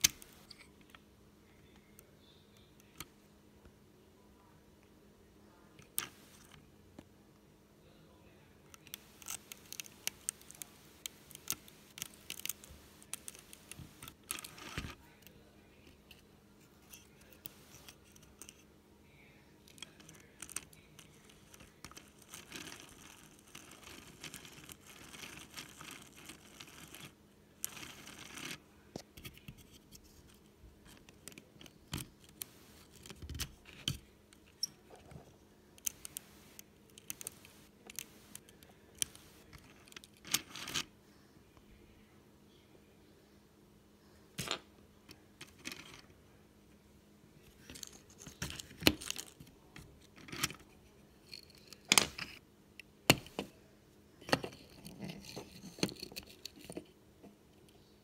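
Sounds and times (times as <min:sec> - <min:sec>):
plastic gears clicking and snapping: 0:08.8 - 0:15.0.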